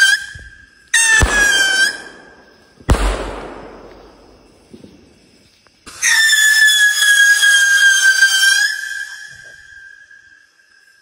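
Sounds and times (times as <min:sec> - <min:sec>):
shrill firework whistle: 0:00.0 - 0:04.8, 0:05.9 - 0:11.0
firework bang: 0:01.1 - 0:05.2.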